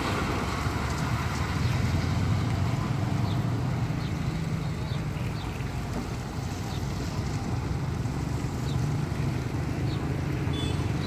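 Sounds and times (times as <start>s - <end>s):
motorbikes passing: 0.0s - 11.0s
truck diesel engine: 0.0s - 11.0s.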